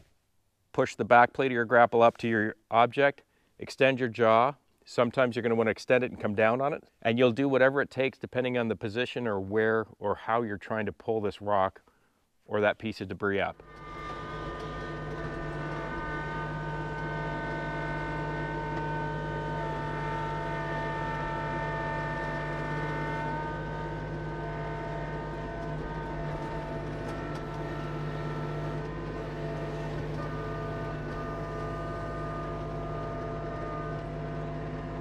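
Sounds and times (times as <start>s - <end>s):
hydraulic whine: 13.4s - 35.0s
tractor diesel engine running: 13.6s - 35.0s.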